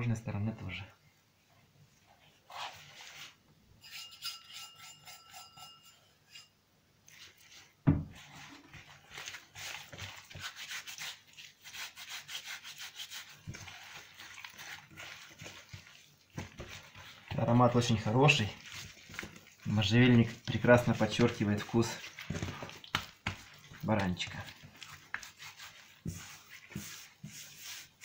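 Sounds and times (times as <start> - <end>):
hands rubbing wet meat: 2.0 - 3.4, 7.1 - 28.0
thump: 7.8 - 8.1.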